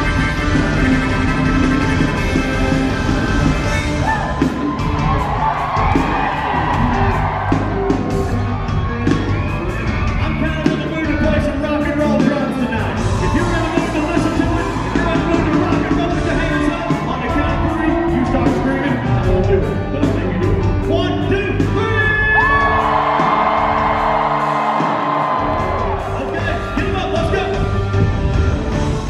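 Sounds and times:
electric guitars: 0.0s - 20.9s
drum beat: 0.0s - 29.0s
crowd shouting: 3.9s - 9.9s, 22.4s - 26.7s.

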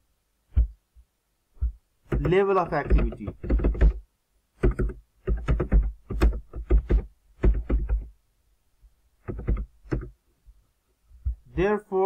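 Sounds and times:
person speaking: 2.1s - 4.0s, 11.3s - 12.0s.

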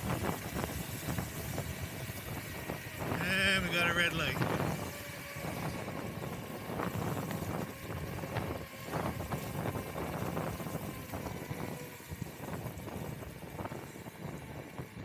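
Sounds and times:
scooter road noise on wet pavement: 0.0s - 15.0s
wind noise on microphone: 0.0s - 15.0s.

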